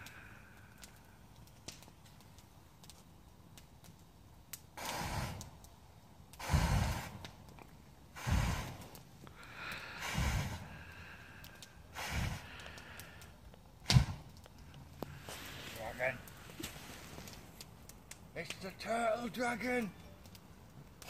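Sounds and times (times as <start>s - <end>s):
fire breathing whoosh: 4.8s - 5.6s, 6.3s - 7.4s, 8.1s - 17.7s.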